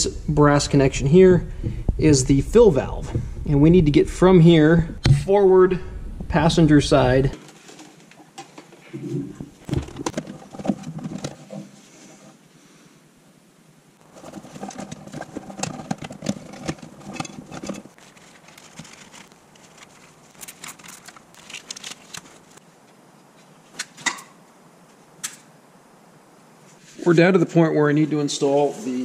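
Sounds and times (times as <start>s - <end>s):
air line rustling and crackling: 0.0s - 12.8s, 14.0s - 24.0s.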